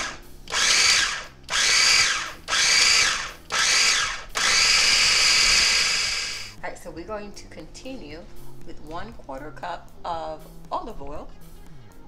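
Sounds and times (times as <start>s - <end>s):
food chopper motor whine: 0.0s - 6.6s.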